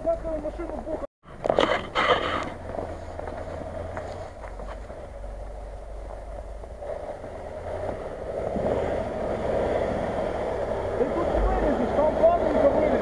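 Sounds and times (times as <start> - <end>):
car engine running: 1.3 - 13.0.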